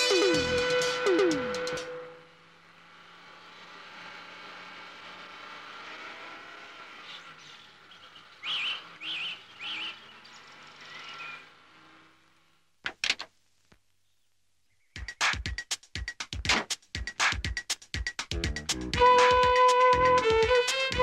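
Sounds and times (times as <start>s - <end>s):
bird chirping: 7.0s - 11.6s, 14.0s - 15.4s.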